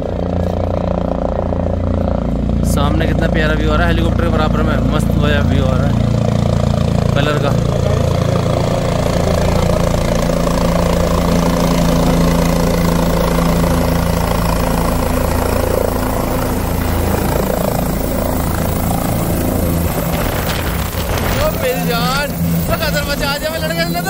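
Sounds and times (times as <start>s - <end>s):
helicopter flying and landing: 0.0s - 24.0s.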